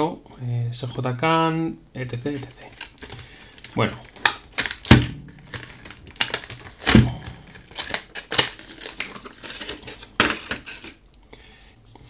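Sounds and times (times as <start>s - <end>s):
plastic packaging crackling: 2.0s - 11.0s
heavier knocks: 4.8s - 5.8s, 6.8s - 7.6s.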